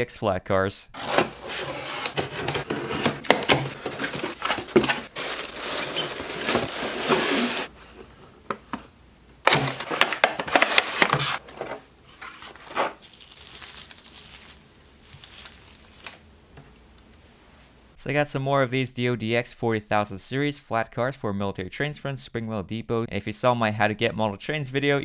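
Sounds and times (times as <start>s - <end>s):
box cutter slitting tape: 1.0s - 7.7s
cardboard box handling: 1.0s - 7.7s, 9.5s - 13.0s
plastic bag crinkling: 1.0s - 7.7s, 9.5s - 16.3s.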